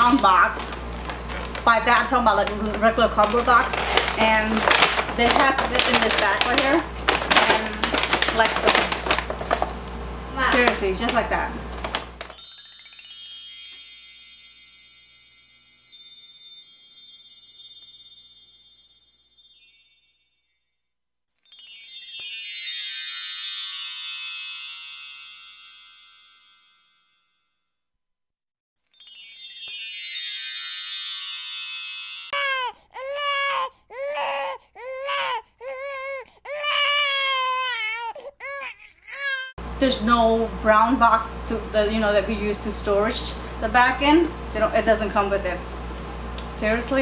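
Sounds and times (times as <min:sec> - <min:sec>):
tinkling chime music: 0:12.3 - 0:27.8, 0:28.8 - 0:32.8
baby crying sound effect: 0:32.3 - 0:39.6.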